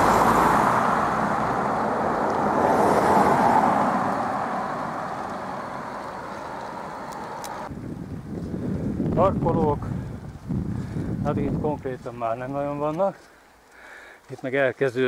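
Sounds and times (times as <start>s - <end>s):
cars driving past: 0.0s - 7.7s.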